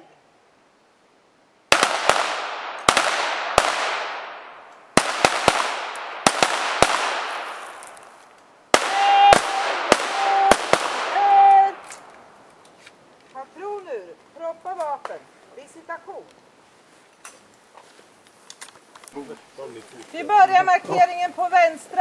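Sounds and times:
pistol shots echoing: 0:01.7 - 0:07.7, 0:08.7 - 0:12.0.

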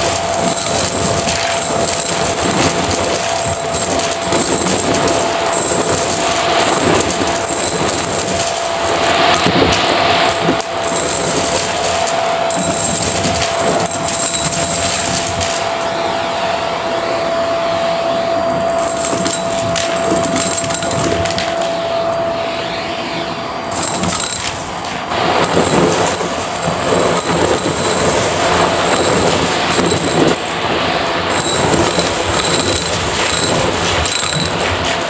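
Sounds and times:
debris rattling up vacuum tube: 0:00.0 - 0:15.9, 0:18.6 - 0:21.8, 0:23.7 - 0:35.0
vacuum cleaner whine: 0:15.0 - 0:24.4.

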